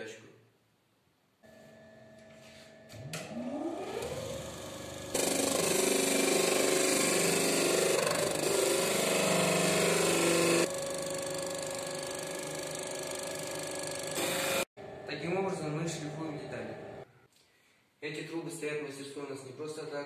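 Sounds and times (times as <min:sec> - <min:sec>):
disc sander motor whine: 0:02.9 - 0:15.0.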